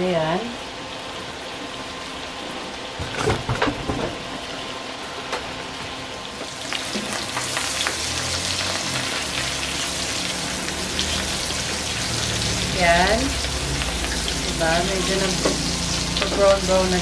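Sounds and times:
mushrooms sizzling in butter: 0:06.3 - 0:17.0.

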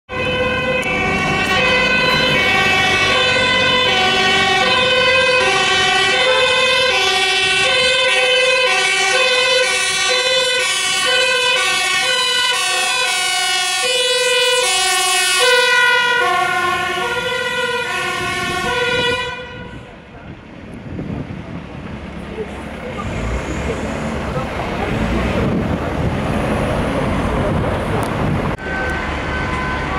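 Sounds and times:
two-tone sirens: 0:00.1 - 0:20.2, 0:22.4 - 0:29.9.

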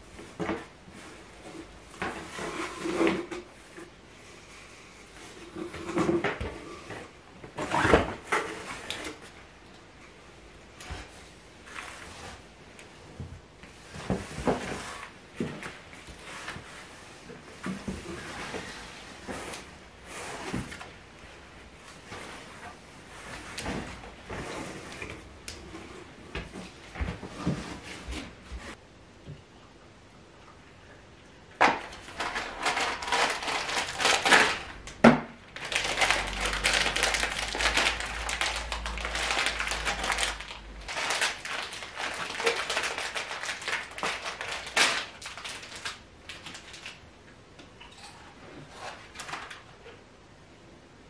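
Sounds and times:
household items handling: 0:31.6 - 0:47.0
loud crinkling and rustling: 0:31.6 - 0:47.0.

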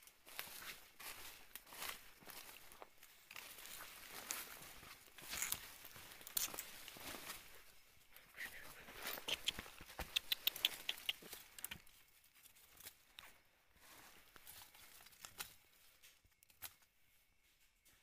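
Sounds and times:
dry leaves rustling and crackling: 0:00.0 - 0:07.8, 0:11.2 - 0:16.9
small clicks: 0:09.3 - 0:11.8.

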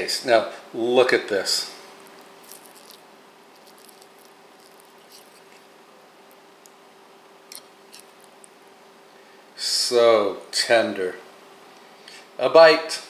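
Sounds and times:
faint steady hum: 0:00.0 - 0:13.0
fork clicking on ceramic plate: 0:07.5 - 0:08.1.

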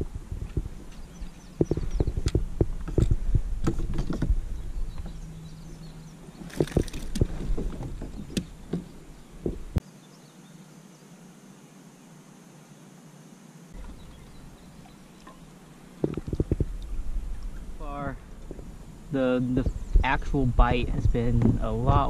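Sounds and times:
low rumble: 0:00.0 - 0:09.8, 0:16.0 - 0:22.0
quiet hiss: 0:00.0 - 0:22.0.

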